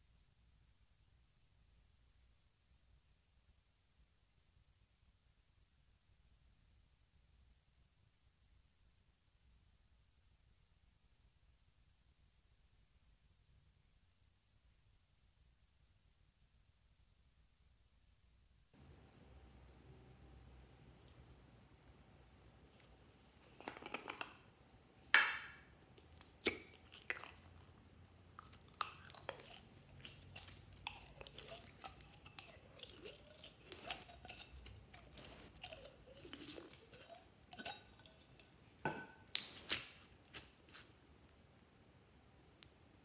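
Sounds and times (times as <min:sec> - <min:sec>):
slime crackling and squeaking: 0:26.0 - 0:38.6.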